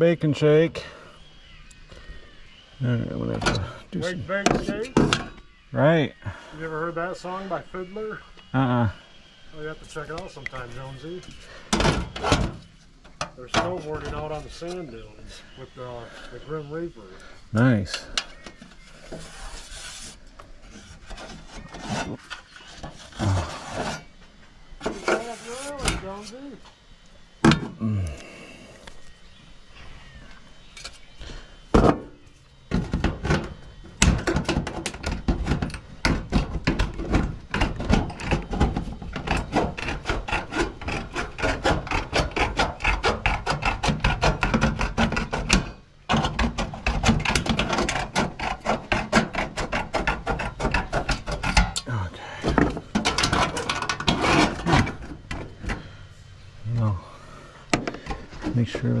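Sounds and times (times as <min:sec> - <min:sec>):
knocks and thumps: 0:11.7 - 0:14.3, 0:31.7 - 0:32.1, 0:32.7 - 0:51.8, 0:52.4 - 0:55.9, 0:57.7 - 0:58.7
rasping strokes on wood: 0:19.0 - 0:24.1, 0:34.8 - 0:55.5.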